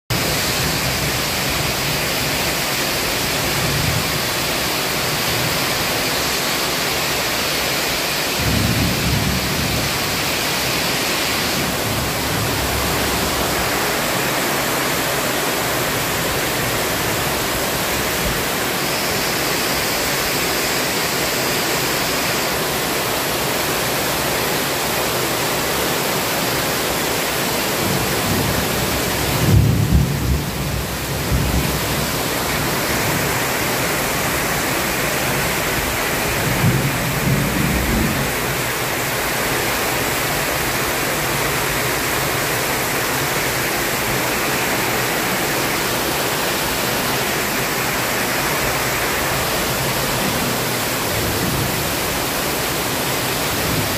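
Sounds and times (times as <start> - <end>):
heavy rain on foliage and metal roof: 0.1 - 53.9
thunder rumbling: 8.4 - 19.9, 27.7 - 39.4.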